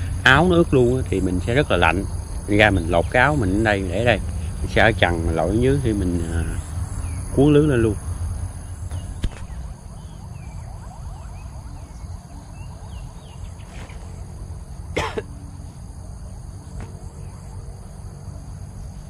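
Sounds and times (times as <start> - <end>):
faint bird chirps: 8.6 - 14.3.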